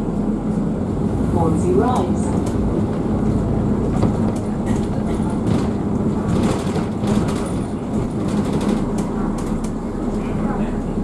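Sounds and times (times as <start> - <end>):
bus engine running: 0.0 - 11.0
road rumble: 0.0 - 11.0.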